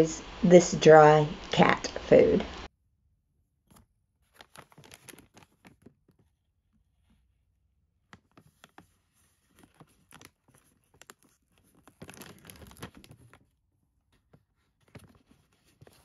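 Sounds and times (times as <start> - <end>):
plastic pouch crinkling and tearing: 4.3 - 6.0, 8.2 - 13.4.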